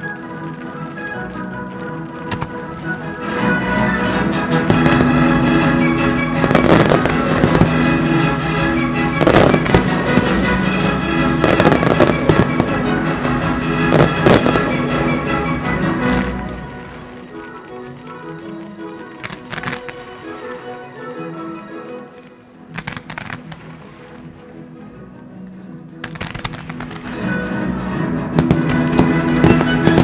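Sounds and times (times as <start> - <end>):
fireworks bursting: 0.0 - 20.5, 22.7 - 24.5, 26.0 - 27.3, 28.3 - 30.0
orchestral music: 0.0 - 30.0.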